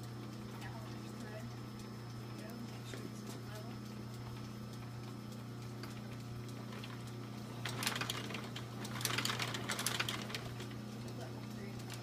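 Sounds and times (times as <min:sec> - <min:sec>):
steady low hum: 0:00.0 - 0:12.0
sewing machine needle clatter: 0:07.6 - 0:10.8.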